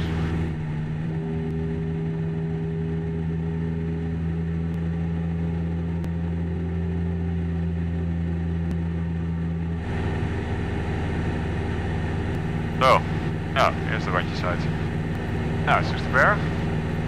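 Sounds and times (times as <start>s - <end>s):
propeller aircraft engine running: 0.0s - 17.0s.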